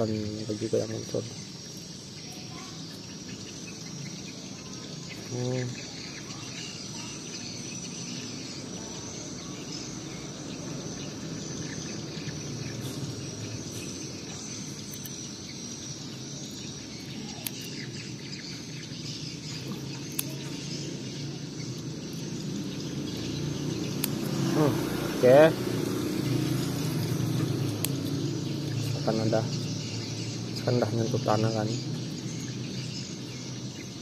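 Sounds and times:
birds and insects chirping: 0.0s - 34.0s
scissors snipping clicks: 14.8s - 15.2s, 17.4s - 17.8s, 19.6s - 20.5s, 23.8s - 24.4s, 27.6s - 28.2s.

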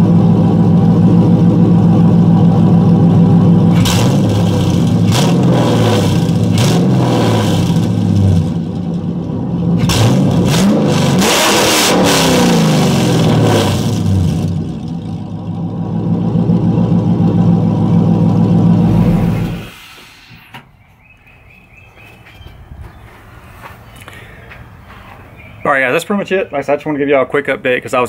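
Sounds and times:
engine idling and revving: 0.0s - 20.4s.

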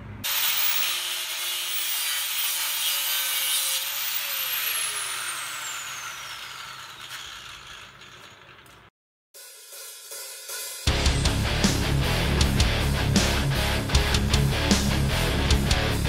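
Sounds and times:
angle grinder cutting steel: 0.2s - 11.9s.

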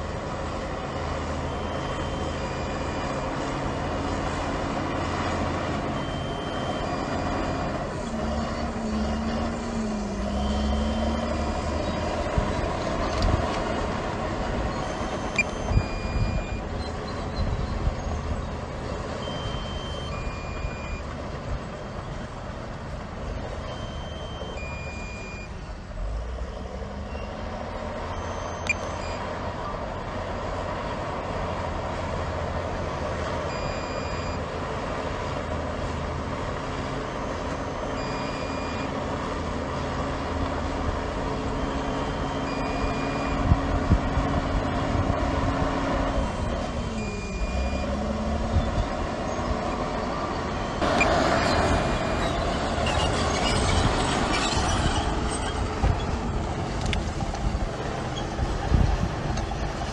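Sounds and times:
diesel engine running: 0.0s - 59.9s
short high beeps: 14.7s - 17.3s, 19.2s - 21.0s, 23.7s - 25.5s, 28.1s - 29.2s, 41.6s - 43.5s.

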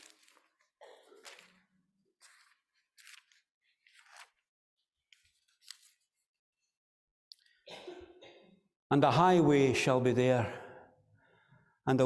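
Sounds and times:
pages turning: 0.0s - 6.4s.

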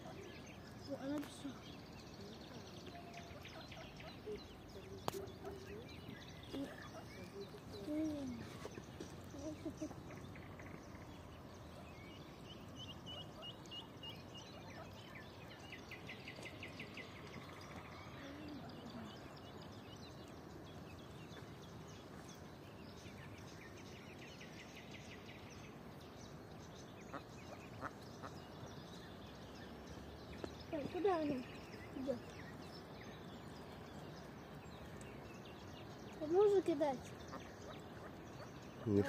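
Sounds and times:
ducklings peeping: 27.1s - 28.8s.

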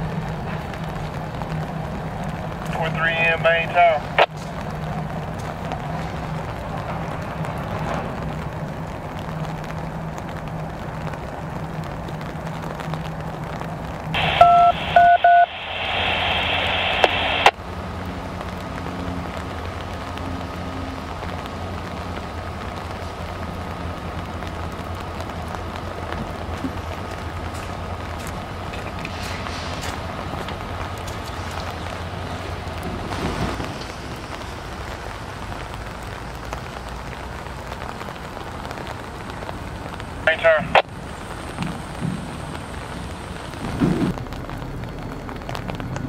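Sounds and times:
low train rumble: 0.0s - 46.0s
radio hiss: 2.7s - 4.3s, 14.2s - 17.6s, 40.2s - 44.1s
radio scanner beeps: 14.2s - 17.5s
steady hum: 14.2s - 17.6s.

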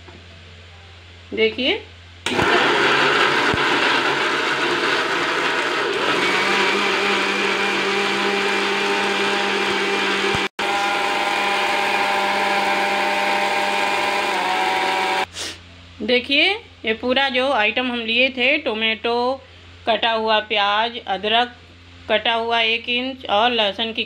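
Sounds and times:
mixer grinder whining: 2.3s - 15.3s.

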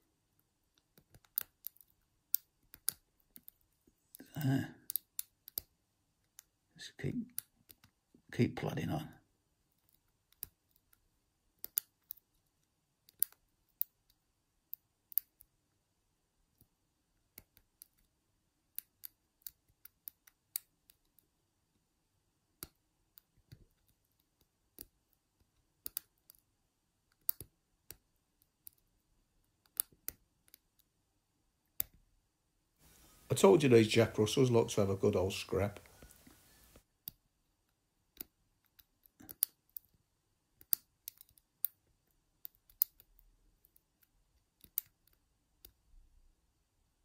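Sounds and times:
lock pick metallic clicks: 40.6s - 41.8s.

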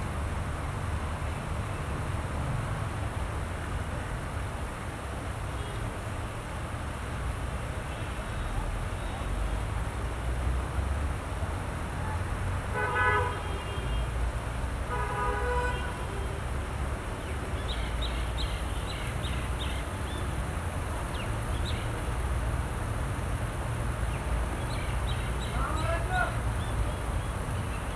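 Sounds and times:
vehicle horn honking: 12.7s - 14.0s, 14.9s - 16.3s.

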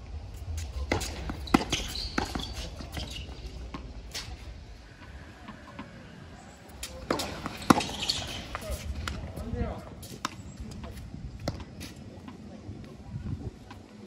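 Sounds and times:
tennis balls struck by racquets: 0.5s - 6.0s, 6.7s - 12.4s
tennis balls bouncing on court: 0.6s - 6.0s, 6.7s - 12.4s.

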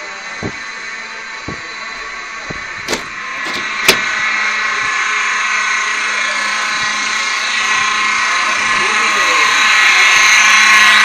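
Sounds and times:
fire alarm buzzing: 0.0s - 11.0s
soft footsteps: 0.4s - 4.3s.

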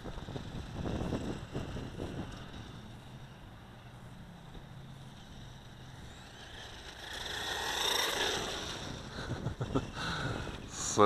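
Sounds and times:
toy tractor motor whining: 4.6s - 9.4s.

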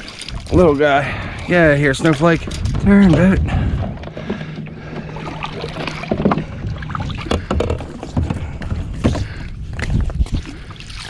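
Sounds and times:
paddle splashing in water: 0.0s - 11.0s
knocks against kayak hull: 7.1s - 9.3s.

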